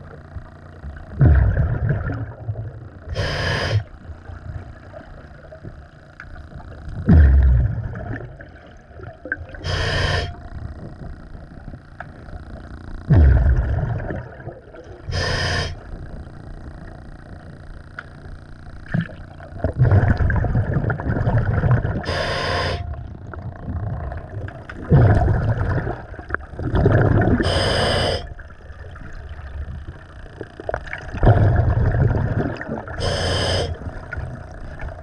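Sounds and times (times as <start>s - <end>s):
exhaled bubbles underwater: 0.8s - 17.6s, 18.8s - 35.0s
diver inhaling through regulator: 3.1s - 4.0s, 9.6s - 10.4s, 15.1s - 15.9s, 22.0s - 23.0s, 27.4s - 28.4s, 33.0s - 34.0s.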